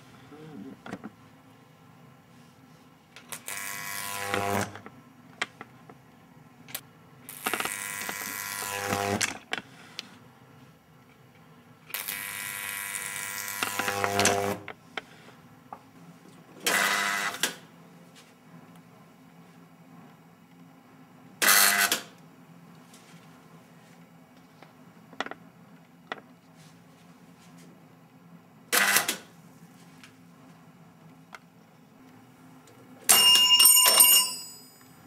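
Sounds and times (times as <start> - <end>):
tesla coil sparks buzzing and crackling: 7.3 - 9.4, 11.9 - 14.7.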